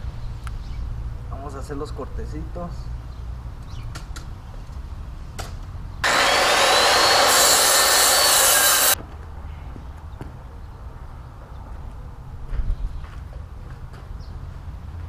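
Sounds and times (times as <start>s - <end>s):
power saw cutting plywood: 6.0s - 9.0s.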